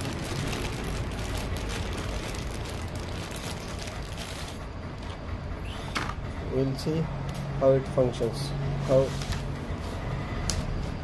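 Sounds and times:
plastic bag crinkling: 0.0 - 4.7
steady low hum: 0.0 - 11.0.

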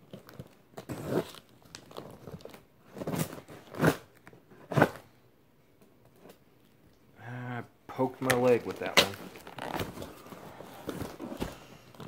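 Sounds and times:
packaging crinkling and tearing: 0.0 - 3.4, 8.2 - 12.0.

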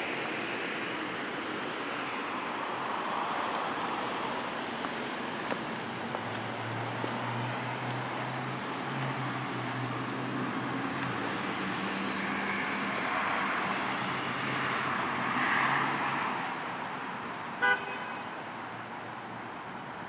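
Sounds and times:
tyre hiss on wet road: 1.5 - 5.5, 6.6 - 8.4
car horn toot: 17.6 - 18.3.

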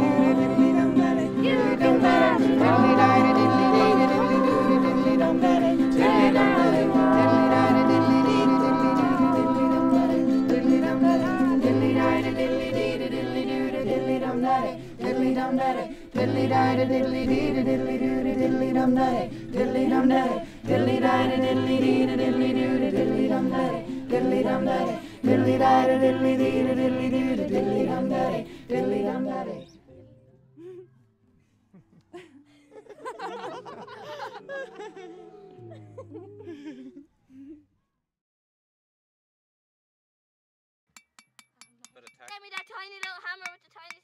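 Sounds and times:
held chords: 0.0 - 14.6
person singing: 0.0 - 29.6.

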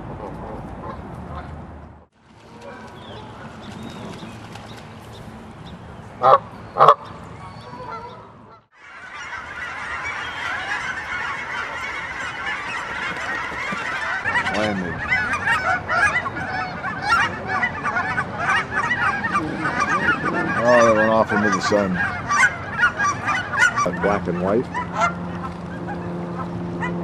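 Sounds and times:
geese honking: 6.1 - 27.0.

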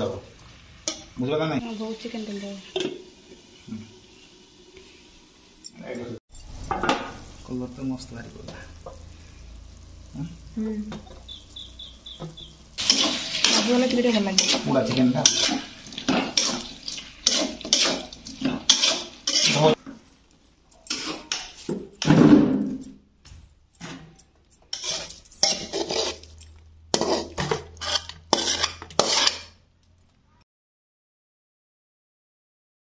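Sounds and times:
steel spoon scraping a pan: 0.8 - 1.1, 12.8 - 22.1, 24.5 - 29.6.

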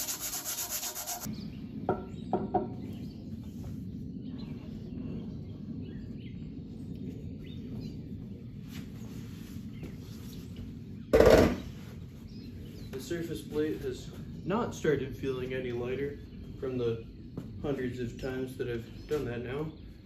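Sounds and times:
rhythmic rubbing: 0.0 - 1.3.

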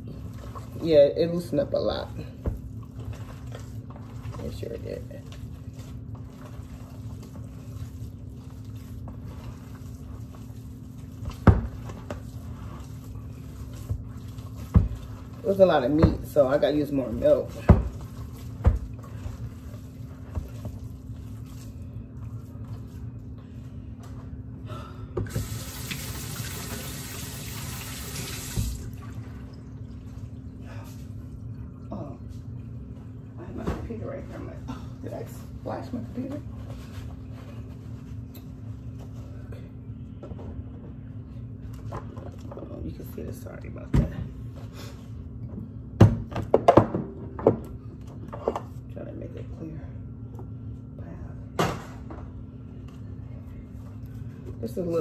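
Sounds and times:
hands squishing wet meat mixture: 0.0 - 24.4
steady low hum: 0.0 - 55.0
faucet running: 25.3 - 29.0.

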